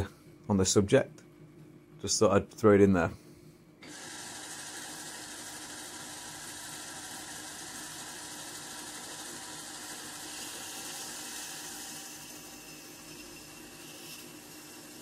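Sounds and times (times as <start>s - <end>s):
lathe machine hum: 3.8s - 15.0s.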